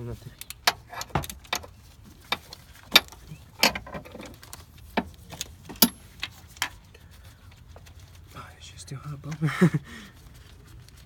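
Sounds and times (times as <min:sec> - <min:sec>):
metal tools clicking and clinking: 0:05.8 - 0:06.3.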